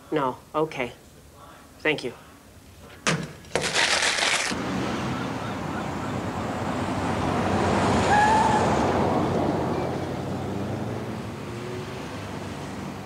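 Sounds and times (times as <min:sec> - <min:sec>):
street traffic: 0:03.8 - 0:13.0
car driving past: 0:04.6 - 0:13.0.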